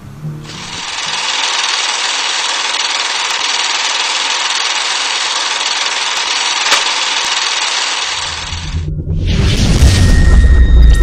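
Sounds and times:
scattered clicks: 0.9 - 8.6.

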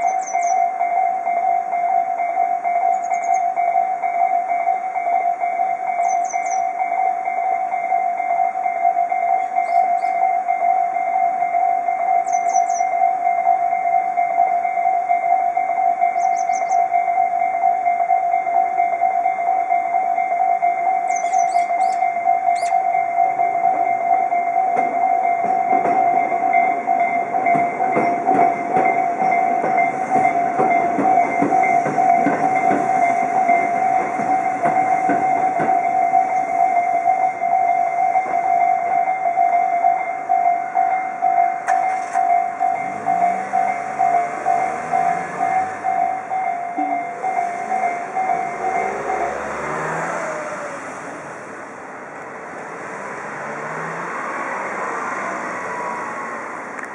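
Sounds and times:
level crossing warning bells: 0.0 - 56.9
road traffic moving: 0.0 - 56.9
train clattering: 24.7 - 51.3.

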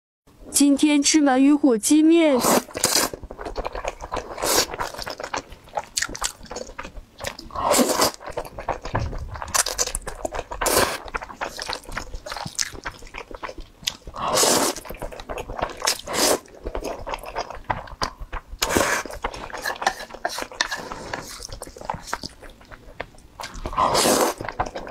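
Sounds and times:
loud slurps of noodles: 2.4 - 5.2, 7.4 - 8.8, 14.1 - 14.9, 15.7 - 16.5, 18.6 - 22.2, 23.5 - 24.6
person chewing: 2.4 - 24.9.

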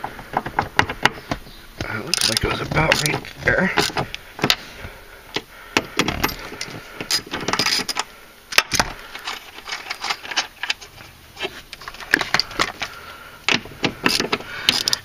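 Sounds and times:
metal clicks and knocks: 0.2 - 4.6, 5.3 - 10.9.

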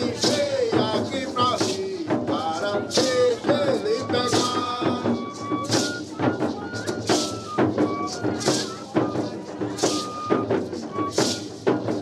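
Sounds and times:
people singing a melody: 0.0 - 7.3
shaken percussion strokes: 0.0 - 12.0.

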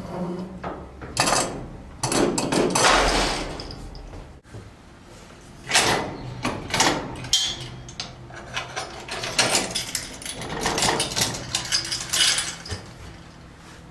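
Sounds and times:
metal chain clicks and rattles: 6.7 - 13.4.

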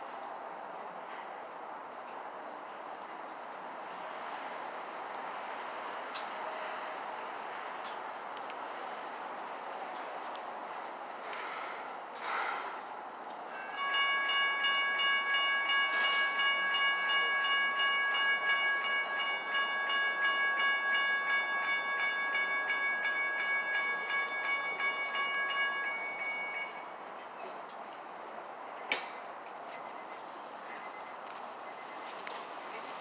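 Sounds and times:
railroad crossing bell ringing: 13.5 - 28.1.

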